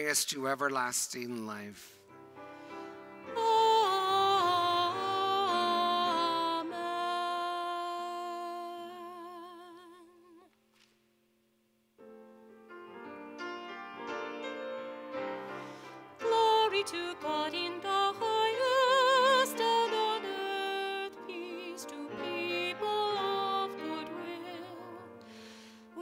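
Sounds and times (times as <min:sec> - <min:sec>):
piano playing: 0:02.0 - 0:09.7, 0:12.0 - 0:26.0
singer with vibrato: 0:03.3 - 0:10.5.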